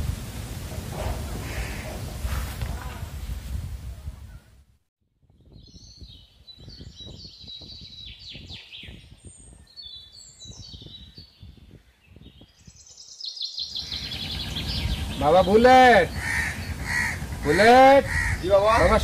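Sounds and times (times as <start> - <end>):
small birds chirping: 5.4 - 19.0
low background rumble: 16.0 - 19.0.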